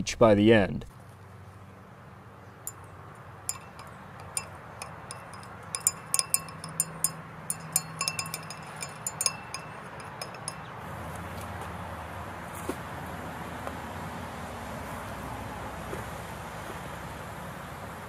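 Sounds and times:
glass rod clinking in beaker: 0:03.5 - 0:10.7.

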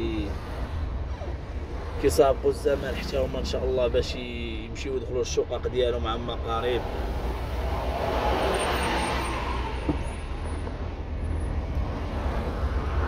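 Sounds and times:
car interior road rumble: 0:00.0 - 0:13.0
bus passing: 0:06.5 - 0:13.0.

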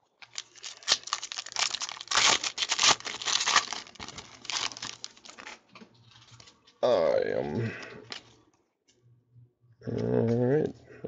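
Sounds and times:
foil wrapper crinkling: 0:00.1 - 0:06.6.

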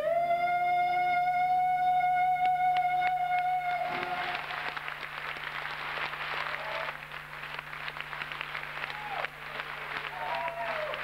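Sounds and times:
audience applauding: 0:03.7 - 0:11.0
crowd calling out: 0:03.8 - 0:04.9, 0:08.8 - 0:11.0.

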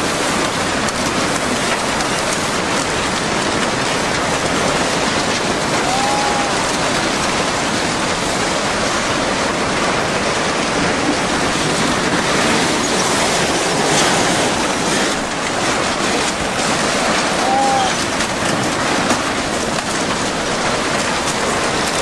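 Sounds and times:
floodwater rushing: 0:00.0 - 0:22.0.

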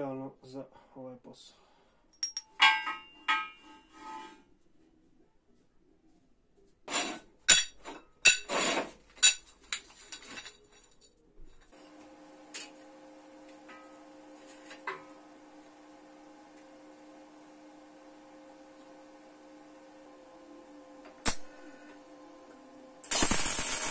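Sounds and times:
metal parts clinking: 0:09.2 - 0:11.2
faint electric hum: 0:09.4 - 0:23.9.

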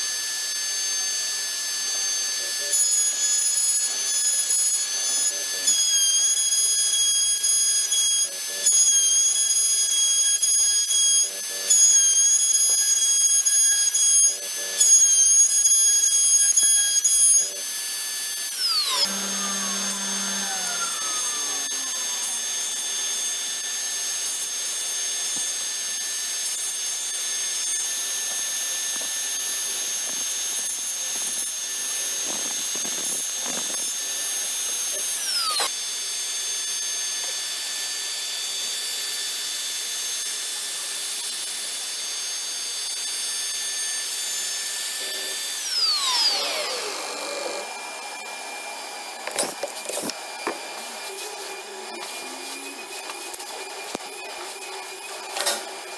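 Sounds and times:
router spindle whining: 0:00.0 - 0:55.9
end mill cutting wood: 0:17.7 - 0:24.1, 0:44.4 - 0:55.9.

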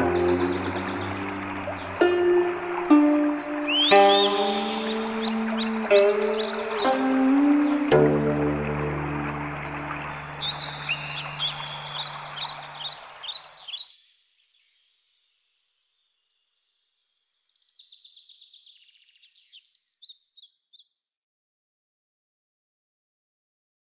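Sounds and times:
ambient music: 0:00.0 - 0:12.7
birds chirping: 0:00.0 - 0:14.0.

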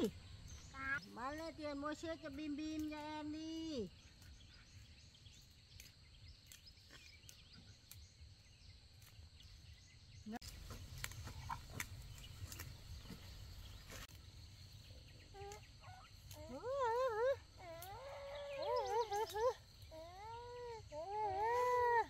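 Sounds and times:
faint outdoor ambience: 0:00.0 - 0:22.0.

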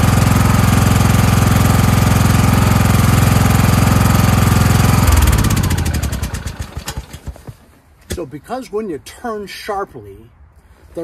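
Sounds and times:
lawn tractor engine running down: 0:00.0 - 0:07.6.

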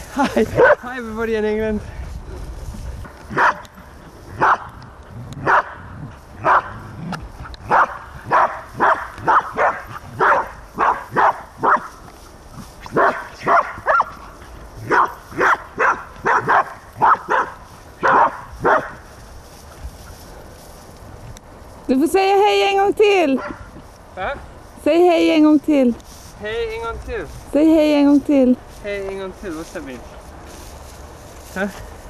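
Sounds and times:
dog barking: 0:00.6 - 0:00.8, 0:03.3 - 0:03.7, 0:04.4 - 0:04.7, 0:05.4 - 0:05.8, 0:06.4 - 0:06.8, 0:07.7 - 0:11.9, 0:12.9 - 0:14.2, 0:14.9 - 0:19.0, 0:23.4 - 0:23.7.

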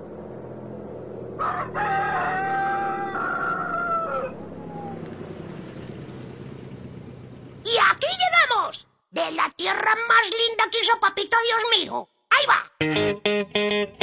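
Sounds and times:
rooster crowing: 0:01.4 - 0:04.5.

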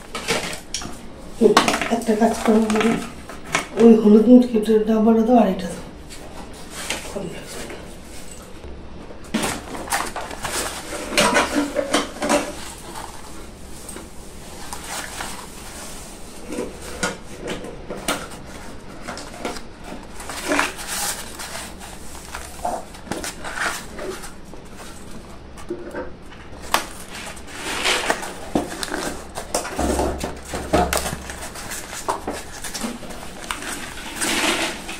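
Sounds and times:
plastic packets crinkling: 0:18.3 - 0:25.5, 0:26.5 - 0:34.9.

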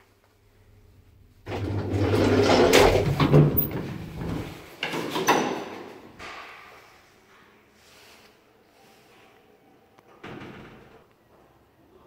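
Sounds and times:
lift doors clacking shut: 0:01.5 - 0:05.9
lift doors sliding open rattling: 0:01.5 - 0:05.9.

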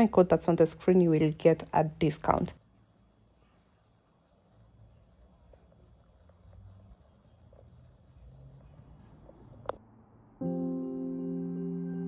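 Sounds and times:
cricket chirping: 0:02.5 - 0:09.8.

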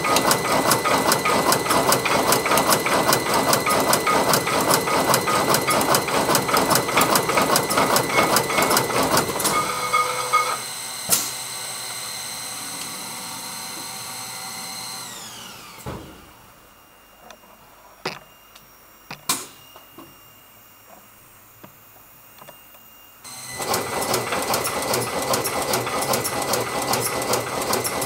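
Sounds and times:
tufting machine punching: 0:00.0 - 0:16.3, 0:23.3 - 0:28.0
motor whine: 0:00.0 - 0:28.0.

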